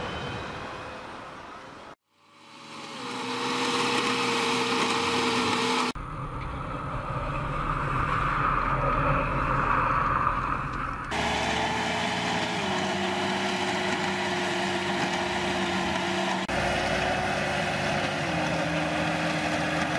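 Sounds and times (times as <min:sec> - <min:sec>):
tractor engine running: 0:10.7 - 0:19.9.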